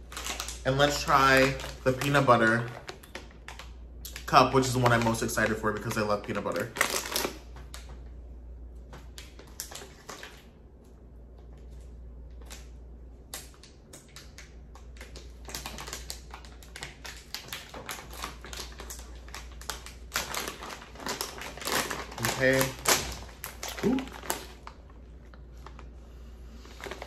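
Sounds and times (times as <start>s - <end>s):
plastic bag crinkling: 0.0s - 7.8s, 13.5s - 25.9s, 26.6s - 27.0s.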